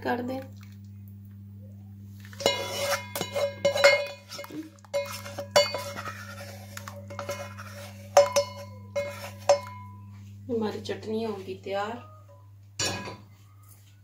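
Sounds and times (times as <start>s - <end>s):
steady low hum: 0.0s - 14.0s
scraping in a bowl: 2.2s - 10.3s
metal cookware clinking: 2.4s - 10.1s, 11.8s - 13.3s.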